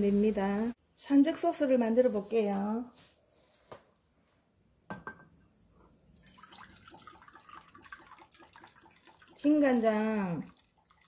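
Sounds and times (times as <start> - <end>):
sauce trickling and glugging: 6.1 - 9.8, 10.4 - 11.0.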